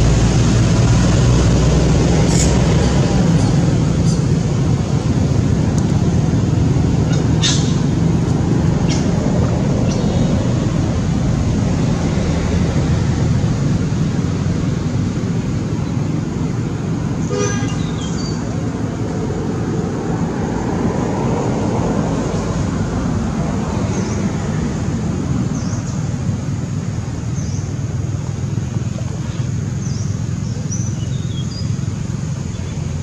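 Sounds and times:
road traffic rumble: 0:00.0 - 0:33.0
car horn toot: 0:17.3 - 0:18.0.

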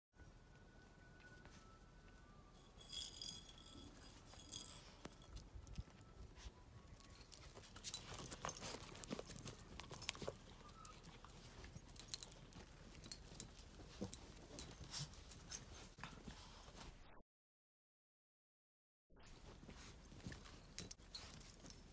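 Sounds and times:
paws clicking and scuffling: 0:03.5 - 0:16.9, 0:19.4 - 0:21.9
puppies squealing: 0:10.2 - 0:11.4.

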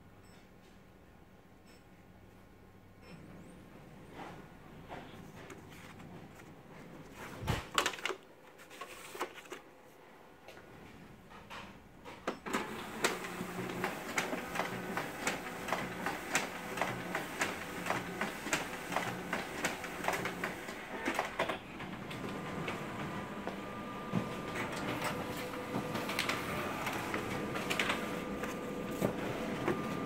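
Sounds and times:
copier running: 0:12.4 - 0:30.0.

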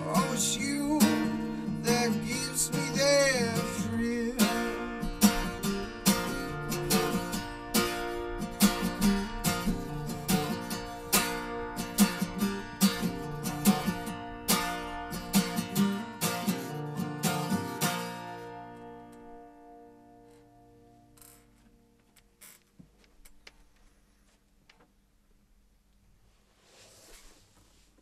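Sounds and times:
acoustic guitar strummed and picked: 0:00.0 - 0:21.2.

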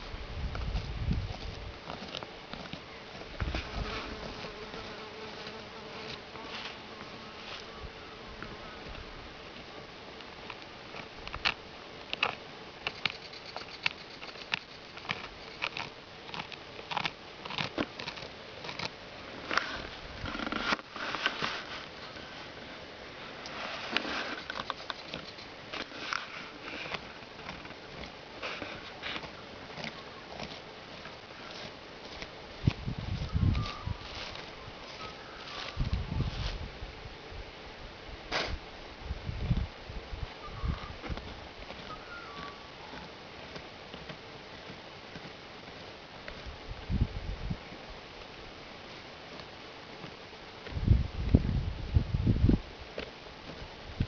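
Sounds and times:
claws scratching dirt: 0:00.5 - 0:07.7, 0:09.6 - 0:22.7, 0:23.3 - 0:36.7, 0:40.8 - 0:46.9
flying insect buzzing: 0:03.4 - 0:09.0, 0:12.9 - 0:15.6.

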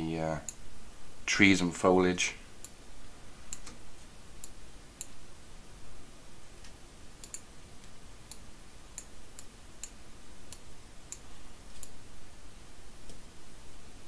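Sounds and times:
computer mouse clicks: 0:03.5 - 0:03.8, 0:06.6 - 0:12.0.

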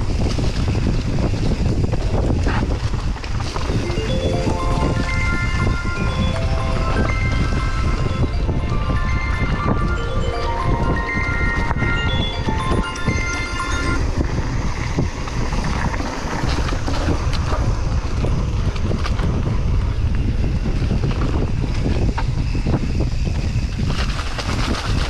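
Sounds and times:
wind buffeting microphone: 0:00.0 - 0:03.9, 0:13.8 - 0:25.0
music: 0:03.8 - 0:14.2
bike clicks and rattles: 0:15.2 - 0:25.0.

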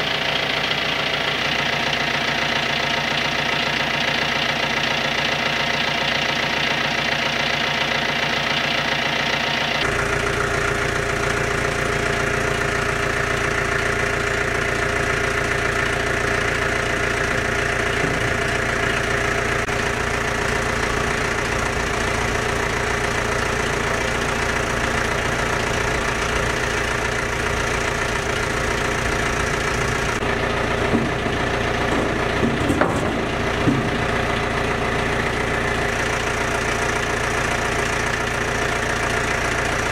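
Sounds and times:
tractor engine idling: 0:00.0 - 0:39.9
metal clanks: 0:30.6 - 0:34.6.

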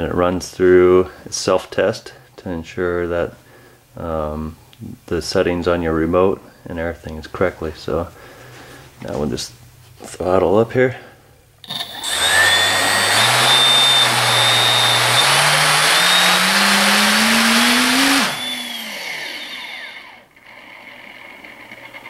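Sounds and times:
electric motor whirring whine: 0:11.7 - 0:20.6
motor winding down: 0:11.7 - 0:22.0.

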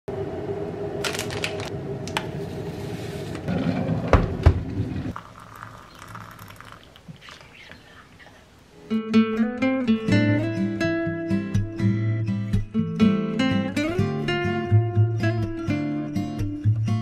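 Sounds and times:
steady machine hum: 0:00.1 - 0:05.1
water trickling into a cup: 0:05.1 - 0:08.4.

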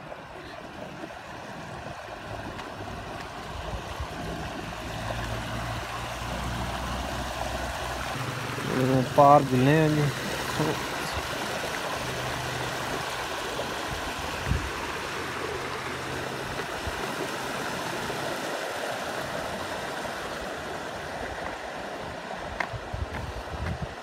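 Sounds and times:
waterfall rushing: 0:00.0 - 0:24.0.

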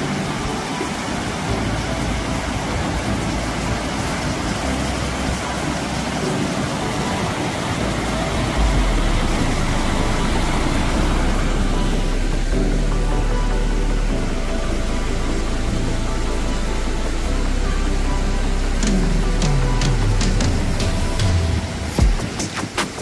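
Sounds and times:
stream rushing over rocks: 0:00.0 - 0:23.0
waterfall roaring: 0:00.0 - 0:23.0
deep low rumble: 0:07.6 - 0:21.8.

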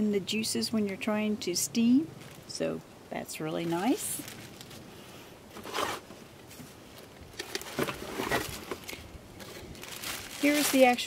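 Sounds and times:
plastic wrap and cardboard rustling: 0:02.2 - 0:02.6, 0:03.3 - 0:11.0.

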